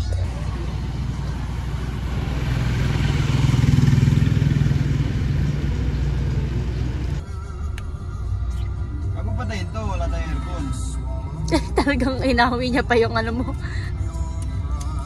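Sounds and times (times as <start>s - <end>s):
motorcycle engine: 0.0s - 7.2s
street traffic: 0.0s - 15.0s.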